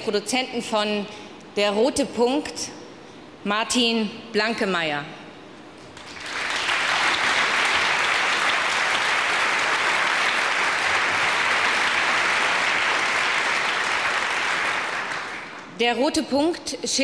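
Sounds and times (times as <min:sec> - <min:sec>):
large audience applauding: 0:06.0 - 0:15.7.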